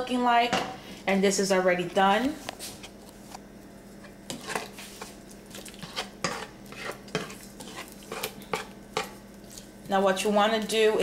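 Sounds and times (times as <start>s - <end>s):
spoon stirring in a pot: 3.9s - 11.0s.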